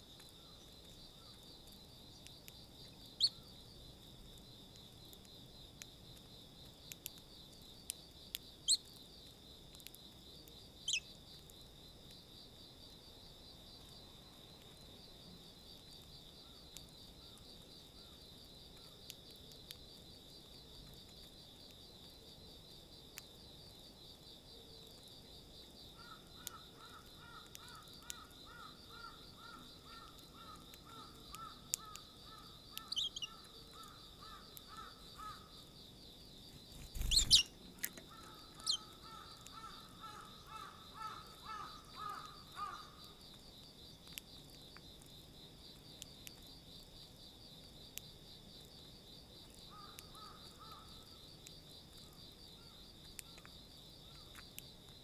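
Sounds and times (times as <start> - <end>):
high insect trill: 0.0 - 55.0
faint ticks: 0.1 - 12.2, 15.6 - 23.8, 24.7 - 55.0
sparrows chirping: 10.8 - 11.1, 30.0 - 35.4, 36.7 - 42.2.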